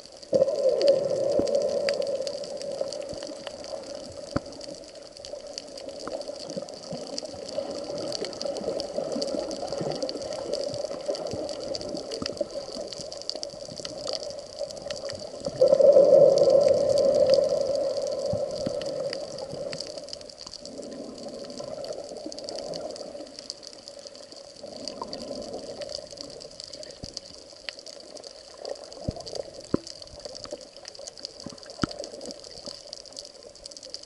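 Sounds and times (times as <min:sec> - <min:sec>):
bubbles rushing underwater: 0:00.0 - 0:23.5
muffled underwater hiss: 0:00.0 - 0:34.0
sharp underwater clicks: 0:00.1 - 0:24.2, 0:24.8 - 0:34.0.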